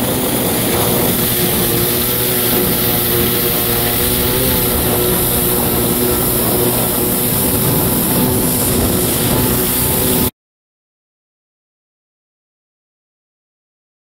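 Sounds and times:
jet ski engine running: 0.0s - 10.3s
rushing noise: 0.0s - 10.3s.

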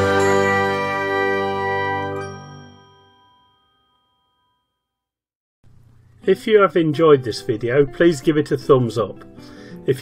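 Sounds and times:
bell-like chime ringing: 0.0s - 5.0s.

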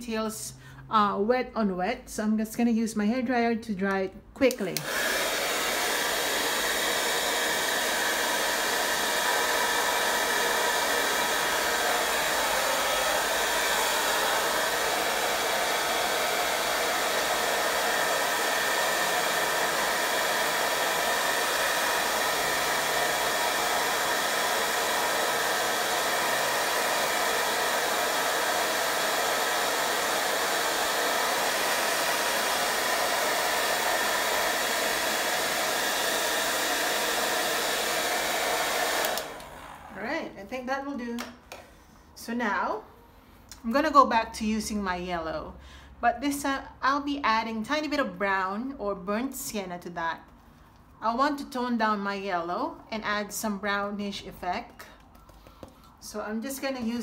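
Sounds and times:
hair dryer blowing: 4.5s - 41.7s, 54.6s - 57.0s.

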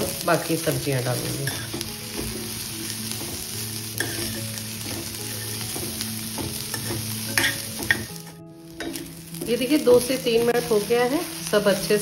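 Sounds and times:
vegetables sizzling in oil: 0.0s - 12.0s
metal spoon stirring in pan: 1.3s - 9.6s
spoon scraping and tapping pan: 1.4s - 9.6s.

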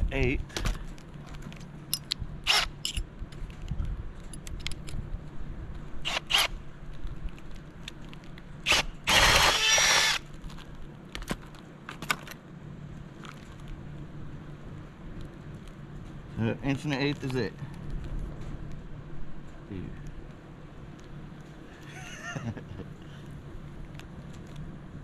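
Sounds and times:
cordless drill running: 6.1s - 6.5s, 8.7s - 10.2s.

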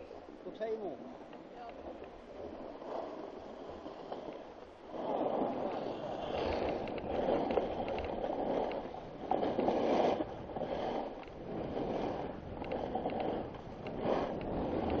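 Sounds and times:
skis sliding on snow: 0.0s - 15.0s
wind on microphone: 1.1s - 15.0s.

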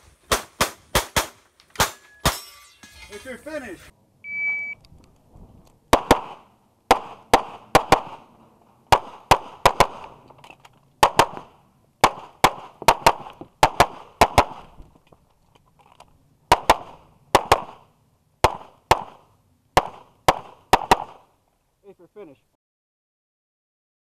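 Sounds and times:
pistol shots: 0.3s - 2.4s, 5.9s - 8.3s, 8.9s - 10.2s, 11.0s - 14.6s, 16.5s - 19.2s, 19.8s - 21.3s.

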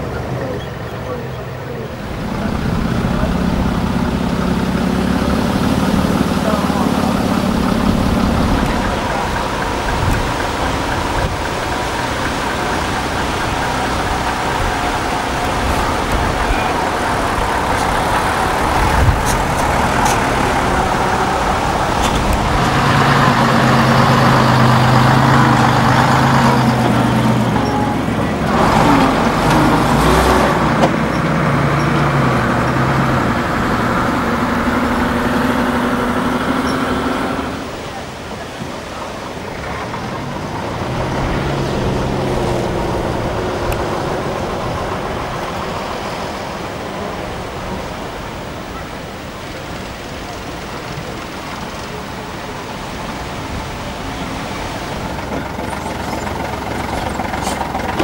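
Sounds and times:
diesel engines driving by: 0.0s - 58.0s.

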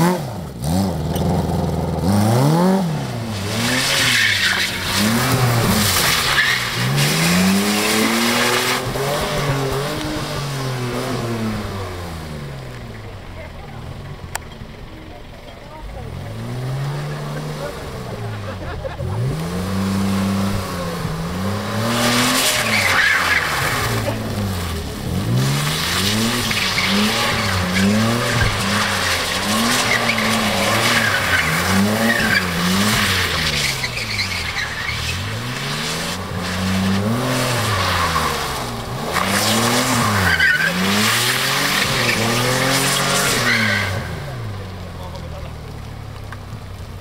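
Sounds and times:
car engine revving: 0.0s - 47.0s
tyres squealing on concrete: 3.4s - 9.8s, 21.8s - 45.3s.

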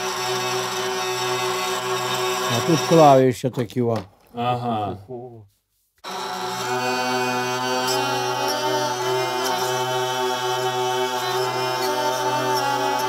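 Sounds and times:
hurdy-gurdy playing: 0.0s - 3.2s, 6.0s - 13.0s.

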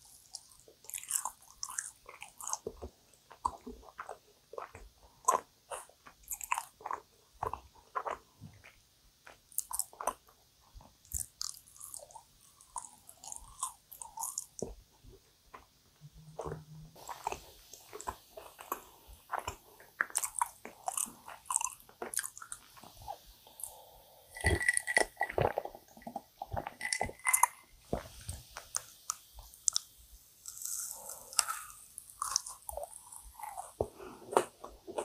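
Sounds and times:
close chewing with wet smacks: 0.0s - 15.7s, 16.4s - 23.8s, 24.4s - 35.0s
person drinking from a glass: 23.6s - 25.8s, 26.4s - 27.6s.

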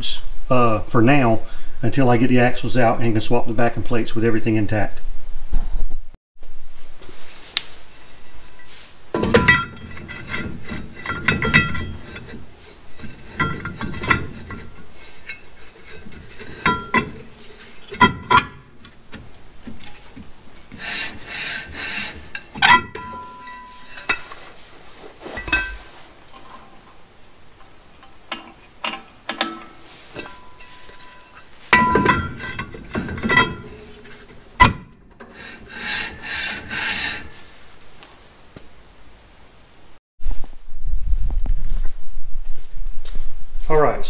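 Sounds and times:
metallic clinks and scraping: 8.2s - 27.0s, 27.6s - 37.5s
metal clank with ring: 9.2s - 10.4s, 11.0s - 12.4s, 16.3s - 18.7s, 22.4s - 24.4s, 28.3s - 34.0s.

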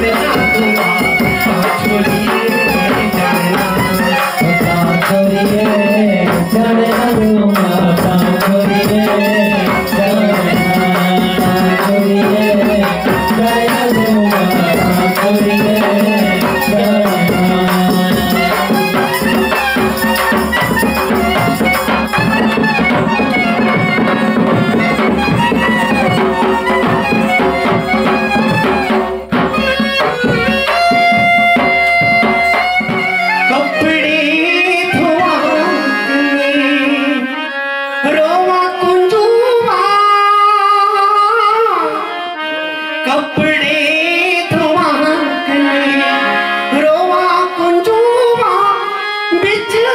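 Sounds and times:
hand drum: 0.0s - 36.2s
harmonium playing: 0.0s - 49.9s
person singing: 0.0s - 49.9s.

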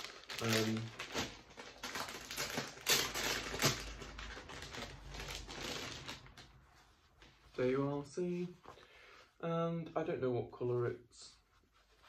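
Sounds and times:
plastic packaging crinkling: 0.0s - 6.6s.

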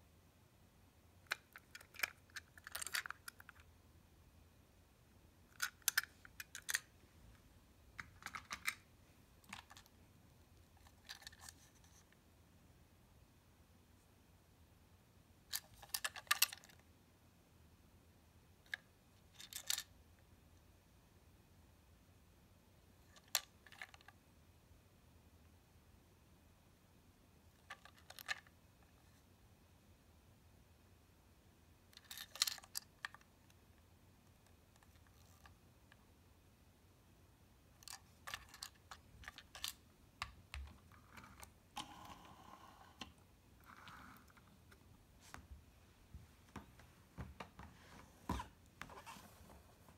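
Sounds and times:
plastic toy train clicking: 5.6s - 6.9s.

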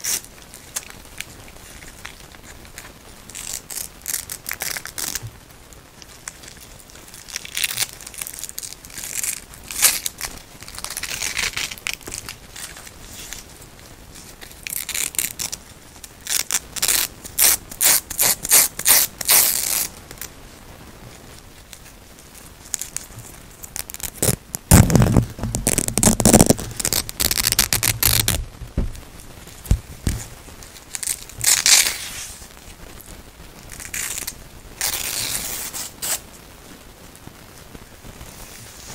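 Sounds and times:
velcro straps ripping apart: 0.0s - 5.3s, 6.2s - 13.5s, 14.3s - 15.6s, 16.2s - 19.9s, 22.7s - 28.4s, 30.8s - 32.4s, 33.7s - 36.2s.

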